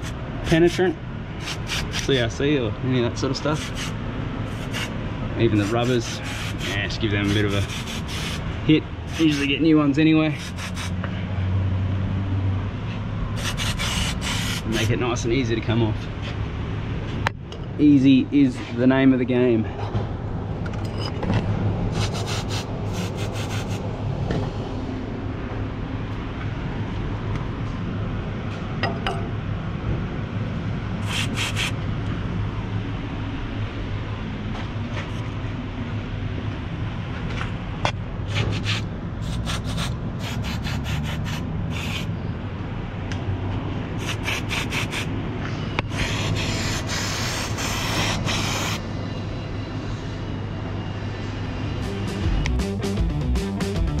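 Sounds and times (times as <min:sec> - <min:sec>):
steady low hum: 0:00.0 - 0:54.0
aerosol spray hissing: 0:07.3 - 0:08.4, 0:31.0 - 0:31.8, 0:38.7 - 0:42.1, 0:44.0 - 0:45.1, 0:46.0 - 0:48.8.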